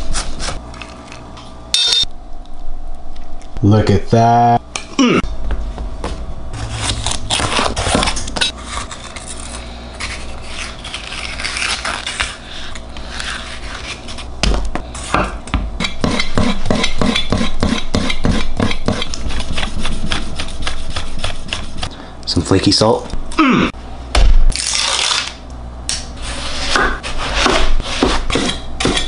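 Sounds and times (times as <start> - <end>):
knife slicing and scraping: 0.0 - 1.1, 6.6 - 15.2, 26.2 - 29.0
knife strokes hitting board: 26.6 - 29.0.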